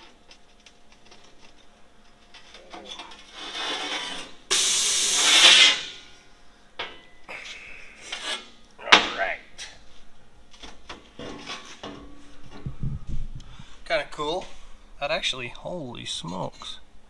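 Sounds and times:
steel sheet scraping on metal: 0:03.1 - 0:06.1
loud rushing hiss: 0:04.5 - 0:06.0.

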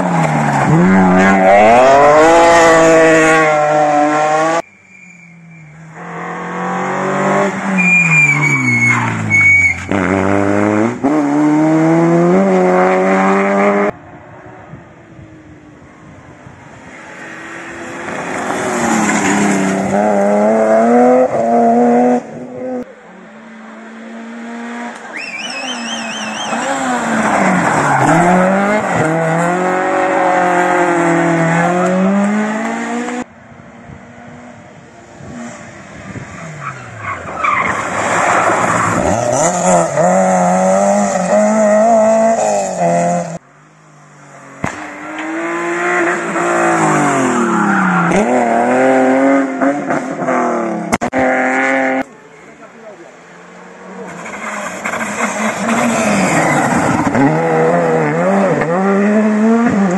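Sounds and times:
tyres skidding and squealing: 0:00.0 - 0:10.7, 0:24.9 - 0:32.4, 0:35.3 - 0:43.7, 0:44.3 - 0:50.4, 0:52.0 - 0:59.9
rally car engines revving: 0:00.0 - 0:14.0, 0:16.7 - 0:59.9.

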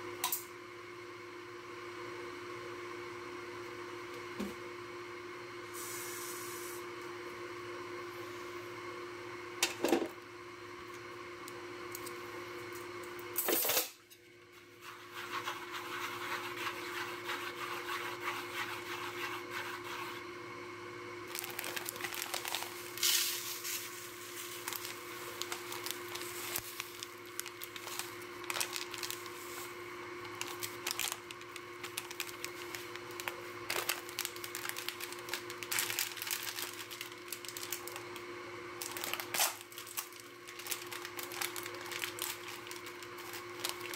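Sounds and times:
faint steady hum: 0:00.0 - 0:43.9
seasoning pouches crinkling: 0:21.3 - 0:38.2, 0:38.8 - 0:43.9.

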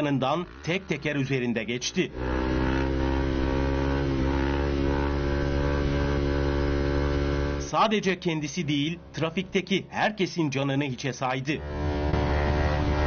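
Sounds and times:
motorcycle engine running: 0:00.0 - 0:07.8, 0:11.6 - 0:13.0.

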